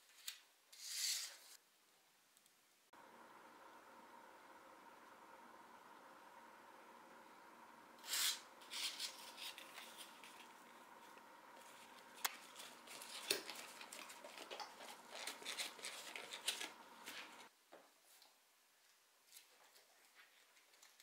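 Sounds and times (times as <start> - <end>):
rustling and scraping: 8.1 - 10.6, 11.5 - 17.5.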